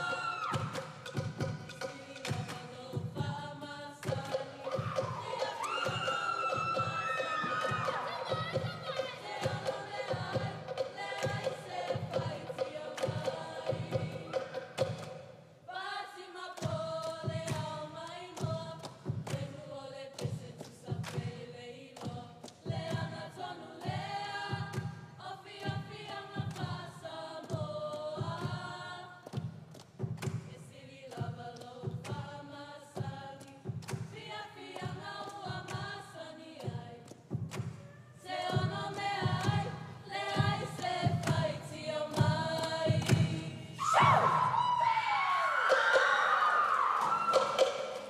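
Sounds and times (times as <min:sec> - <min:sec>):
steady drum beat: 0:00.0 - 0:15.4, 0:22.1 - 0:30.6, 0:31.2 - 0:44.5
choir of women singing: 0:00.0 - 0:29.5, 0:30.2 - 0:48.0.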